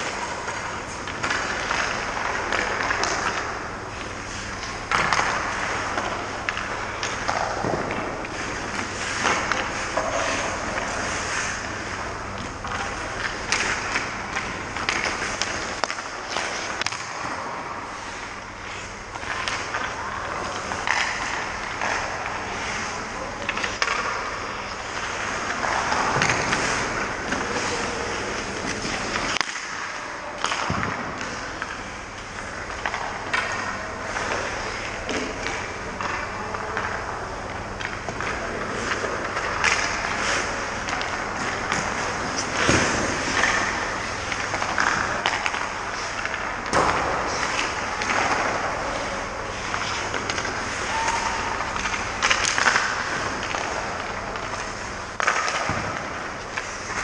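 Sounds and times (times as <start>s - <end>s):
skates scraping on ice: 0.0s - 31.8s, 37.8s - 57.0s
sticks and pucks knocking: 37.8s - 57.0s.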